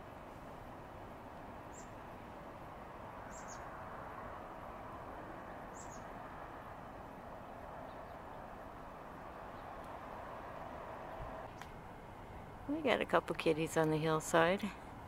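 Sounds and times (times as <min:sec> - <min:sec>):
steady background hum: 0:00.0 - 0:15.0
small bird chirping: 0:01.7 - 0:02.0, 0:03.3 - 0:03.7, 0:05.7 - 0:06.1, 0:07.9 - 0:08.4.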